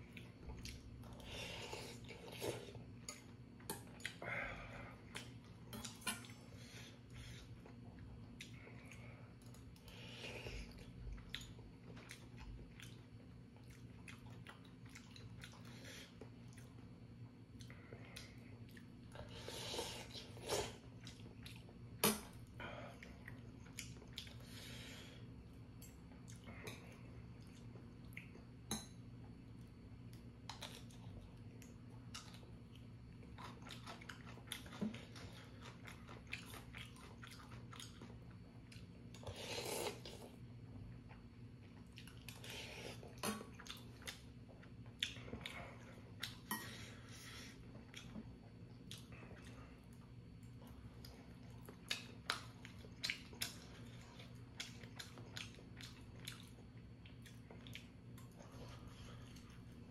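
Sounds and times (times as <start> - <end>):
steady low hum: 0.0 - 59.9
chewing: 4.9 - 19.4, 20.0 - 24.7, 25.8 - 28.5, 30.1 - 59.9
slurping noodles: 39.2 - 40.3.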